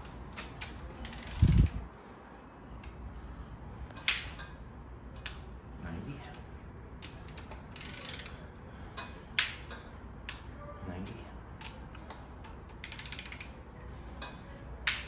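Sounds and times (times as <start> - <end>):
wrench ratchet clicking: 0.4 - 1.8, 7.0 - 8.4, 12.7 - 13.6
sharp metallic snap: 4.0 - 4.5, 9.4 - 9.8.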